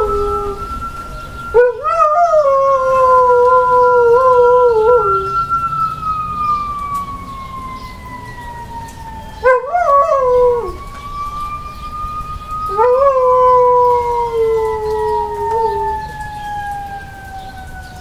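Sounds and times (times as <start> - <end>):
dog howling: 0.0 - 0.8, 1.5 - 5.5, 9.4 - 11.6, 12.6 - 18.0
fire truck siren wailing: 0.0 - 18.0.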